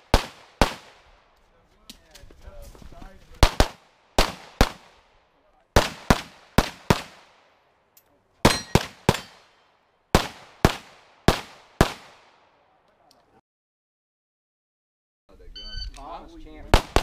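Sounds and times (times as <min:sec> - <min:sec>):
pistol shots: 0:00.0 - 0:01.1, 0:03.4 - 0:05.0, 0:05.8 - 0:07.5, 0:08.4 - 0:12.5, 0:16.7 - 0:17.0.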